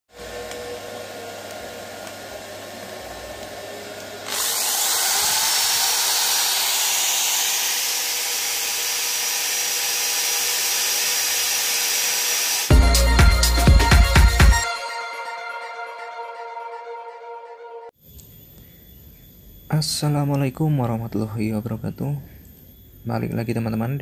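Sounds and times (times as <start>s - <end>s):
electric impact drill running: 0.1s - 12.7s
music: 12.7s - 17.9s.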